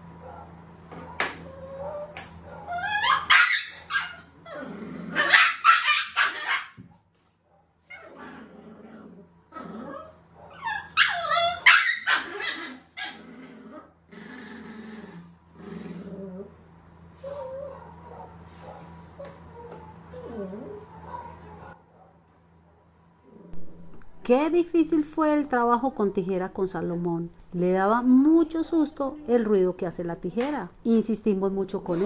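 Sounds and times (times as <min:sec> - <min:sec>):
puppy growling and barking: 0:00.2 - 0:06.8, 0:07.8 - 0:21.8, 0:23.2 - 0:24.1.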